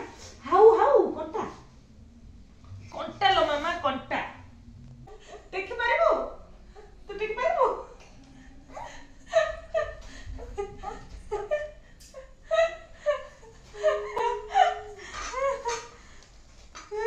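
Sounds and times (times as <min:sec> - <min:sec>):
woman laughing: 0:08.7 - 0:16.0.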